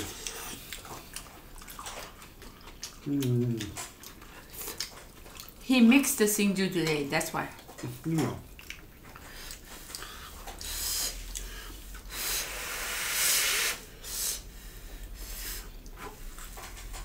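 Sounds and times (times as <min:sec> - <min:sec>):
breathy hissing through mouth: 0:10.0 - 0:15.7.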